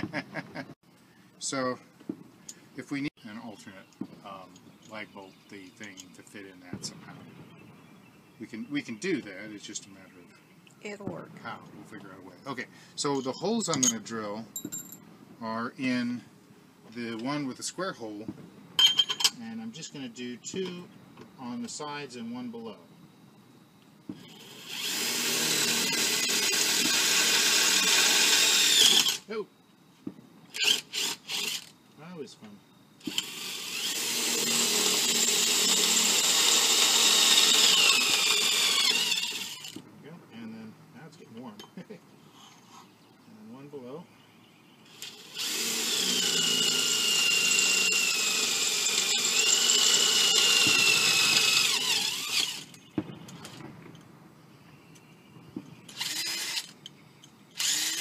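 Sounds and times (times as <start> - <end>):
power drill motor running: 24.3 - 29.3, 30.5 - 31.7, 33.0 - 39.8, 44.9 - 52.7, 55.9 - 56.8, 57.5 - 58.0.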